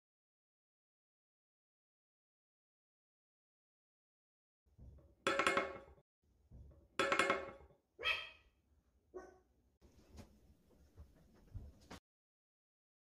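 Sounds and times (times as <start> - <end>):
dog barking: 8.0 - 8.4, 9.2 - 9.5.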